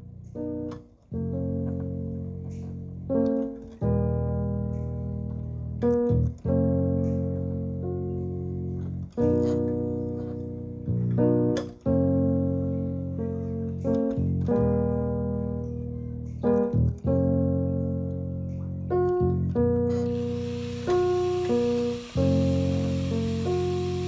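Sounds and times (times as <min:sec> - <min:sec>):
keyboard chords ringing: 0:20.1 - 0:24.0.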